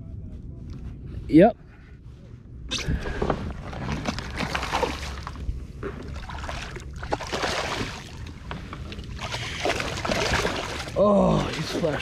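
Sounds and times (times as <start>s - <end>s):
fish splashing in water: 4.0s - 8.4s, 9.1s - 12.0s.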